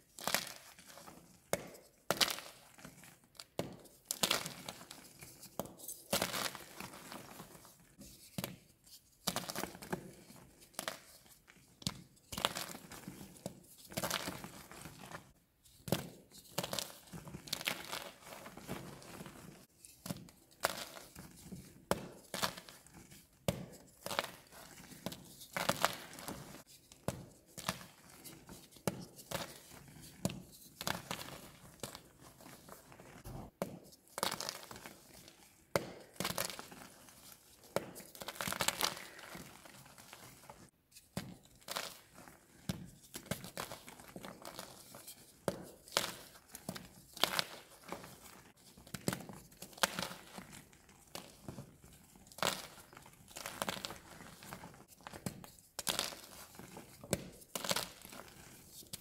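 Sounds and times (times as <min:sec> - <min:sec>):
chalk crumbling and crackling: 0:12.3 - 0:33.5, 0:34.1 - 0:59.0.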